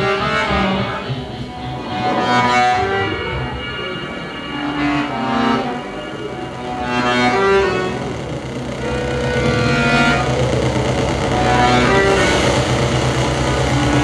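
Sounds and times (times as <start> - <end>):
electronic soundscape music: 0.0 - 14.0
low steady rumble: 0.0 - 14.0.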